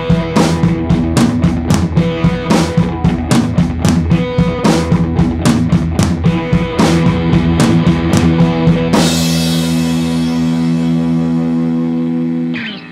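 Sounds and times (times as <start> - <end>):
rock music with drums and guitar: 0.0 - 12.9.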